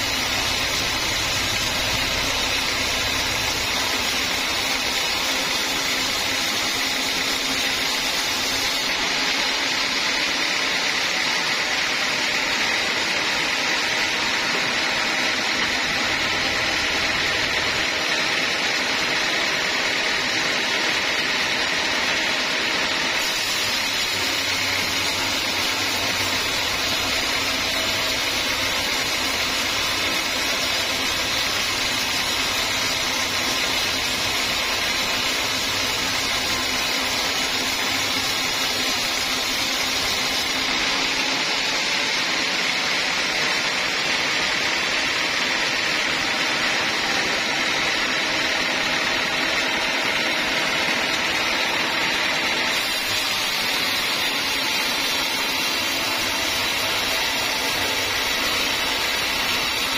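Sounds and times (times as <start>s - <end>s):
band sawmill sawing log: 0.0s - 59.9s.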